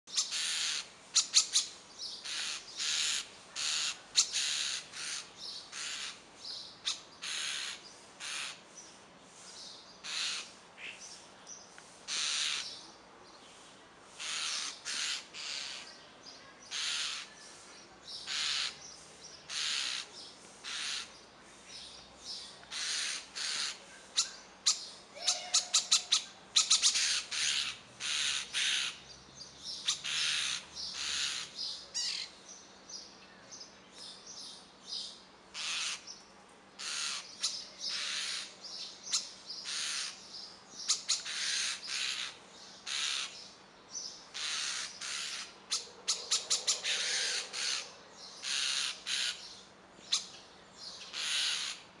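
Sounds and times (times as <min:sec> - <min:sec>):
nestlings hissing begging calls: 0:00.1 - 0:06.2, 0:06.8 - 0:08.6, 0:10.0 - 0:10.9, 0:12.0 - 0:12.7, 0:14.1 - 0:16.0, 0:16.7 - 0:17.4, 0:18.1 - 0:21.2, 0:22.7 - 0:29.0, 0:35.5 - 0:36.1, 0:36.8 - 0:38.5, 0:40.8 - 0:43.4, 0:44.3 - 0:49.4, 0:51.1 - 0:51.9.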